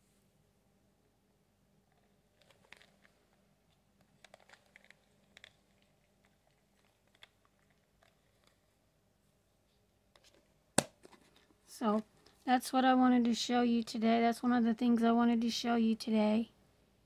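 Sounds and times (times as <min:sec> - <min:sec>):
jewelry clicking and rattling: 0:04.1 - 0:08.6.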